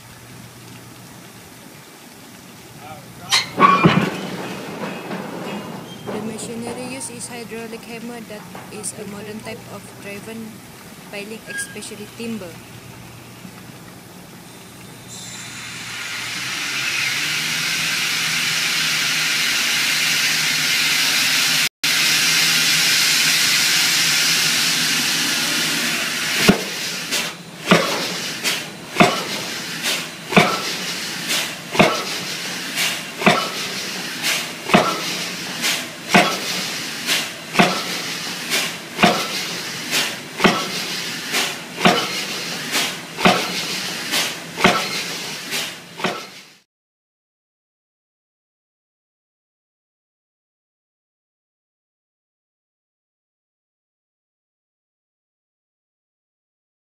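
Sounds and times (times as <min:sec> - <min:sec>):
hydraulic hiss: 0:15.0 - 0:46.6.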